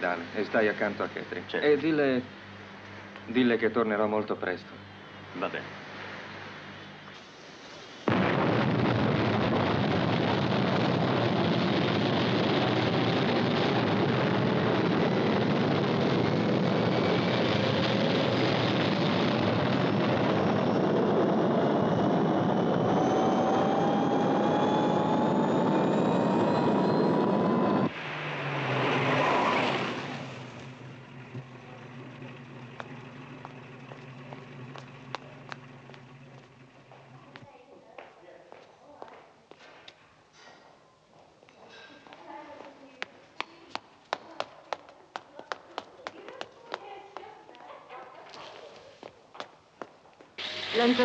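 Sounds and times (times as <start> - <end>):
rising whine: 4.9 - 37.4, 50.4 - 51.0
low hum: 4.9 - 37.5
rocket motor roar: 8.1 - 37.4, 50.4 - 51.0.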